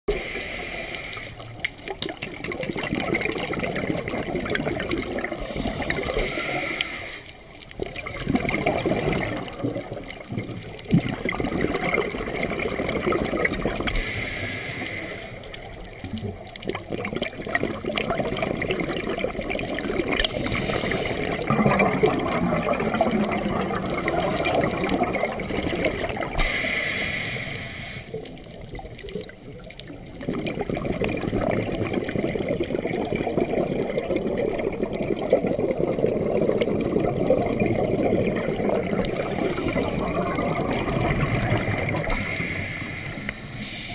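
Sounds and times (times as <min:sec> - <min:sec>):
regulator hiss on inhale: 0:00.1 - 0:01.7, 0:05.5 - 0:07.6, 0:13.9 - 0:15.9, 0:20.2 - 0:21.4, 0:26.3 - 0:28.5, 0:39.0 - 0:40.2, 0:42.0 - 0:43.9
exhaled air bubbling underwater: 0:00.1 - 0:43.9.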